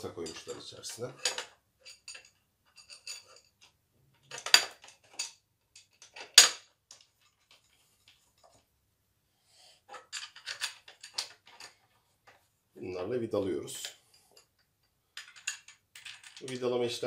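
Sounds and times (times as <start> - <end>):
metal parts clinking: 0.0 - 8.6, 9.9 - 11.9, 15.2 - 16.7.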